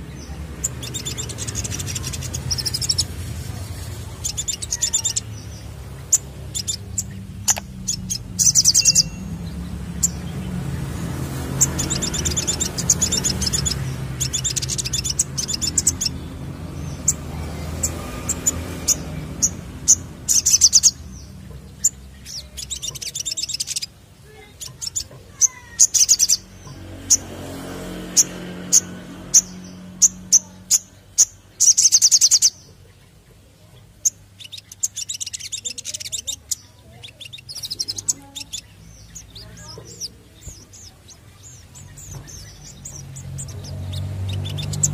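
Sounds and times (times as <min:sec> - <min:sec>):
bird trills: 0:00.2 - 0:10.3, 0:11.6 - 0:27.3, 0:34.0 - 0:44.9
bird chip notes: 0:04.2 - 0:10.3.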